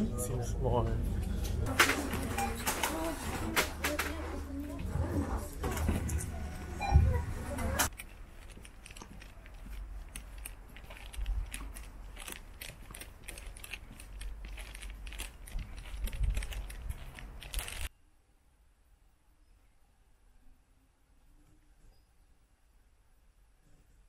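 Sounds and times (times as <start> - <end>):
small irregular clicks and taps: 7.8 - 17.9.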